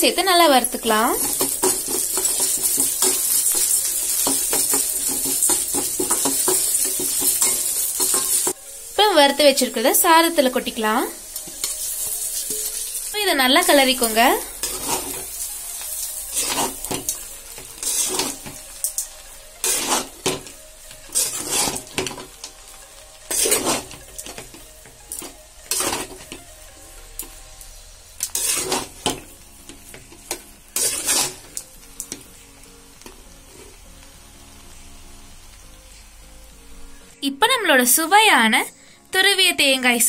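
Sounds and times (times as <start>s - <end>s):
metal ladle scraping a metal pan: 1.2s - 8.6s, 14.5s - 15.4s, 16.3s - 17.2s, 17.8s - 19.0s, 19.6s - 20.5s, 21.1s - 22.4s, 23.3s - 24.5s, 25.2s - 26.4s, 28.2s - 29.2s, 30.3s - 31.6s.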